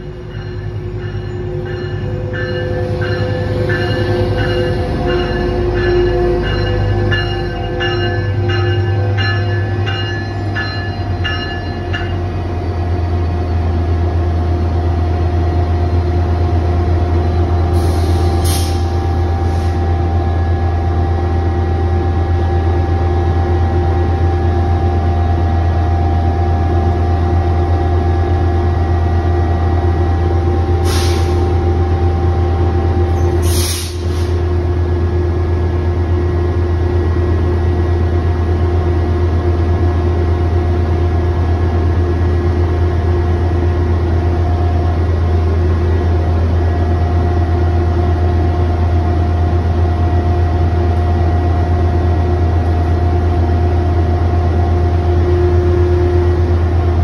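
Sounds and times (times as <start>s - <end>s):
locomotive bell ringing: 0.0s - 13.8s
diesel engine low drone: 0.0s - 57.0s.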